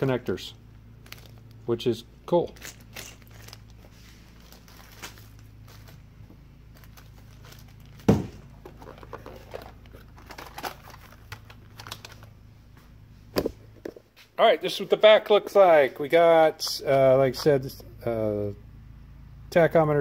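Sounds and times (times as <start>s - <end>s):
faint steady hum: 0.0s - 20.0s
plastic bags crinkling: 1.0s - 1.6s, 2.6s - 12.4s.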